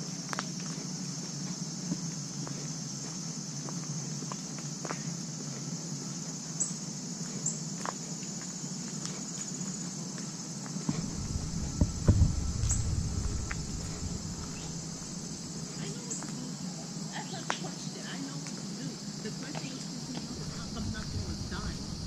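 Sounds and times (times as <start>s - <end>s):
footsteps on paved path: 0.0s - 16.6s, 17.2s - 22.0s
insects chirping: 0.0s - 22.0s
low rumble: 10.9s - 15.9s, 20.2s - 22.0s.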